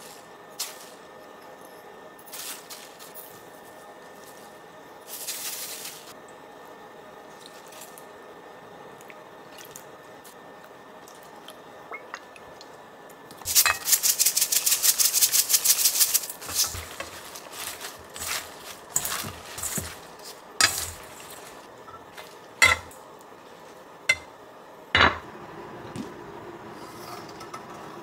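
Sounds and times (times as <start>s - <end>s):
seeds rattling in shaker jar: 5.0s - 6.2s, 13.4s - 21.7s.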